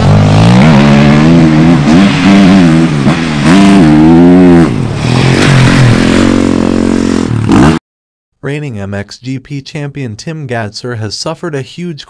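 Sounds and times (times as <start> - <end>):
motorbike engine revving: 0.0 - 7.8.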